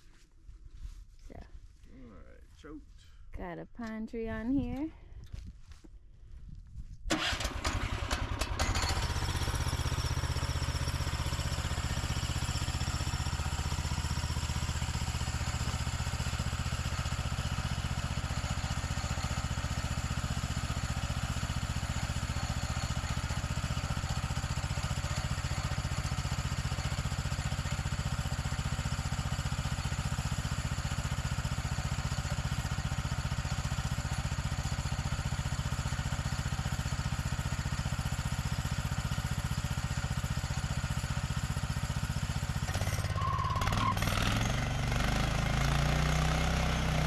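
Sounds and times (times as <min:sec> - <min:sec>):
gasoline engine starting and running: 0:07.1 - 0:47.0.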